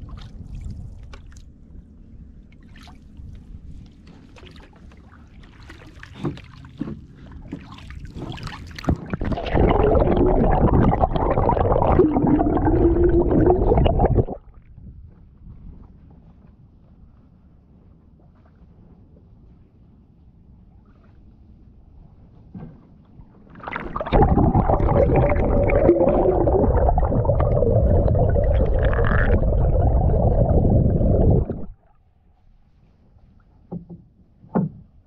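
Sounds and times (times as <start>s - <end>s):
paddle splashes and drips: 0.0s - 1.6s, 2.5s - 12.4s, 23.4s - 32.0s
muffled underwater rush and bubbling: 7.9s - 14.6s, 23.5s - 32.1s.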